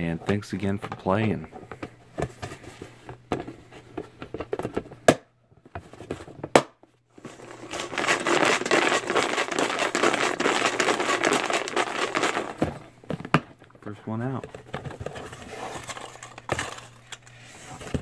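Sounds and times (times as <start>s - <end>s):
paper crinkling in plastic tub: 7.2s - 12.8s, 14.4s - 18.0s
paper slips rustling: 7.2s - 12.8s.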